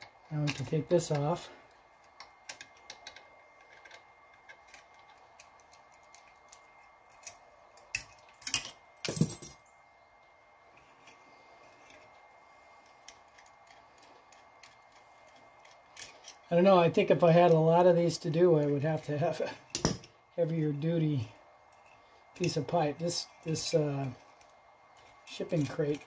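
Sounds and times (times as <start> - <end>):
metal tools clicking and tapping: 2.0 - 9.7.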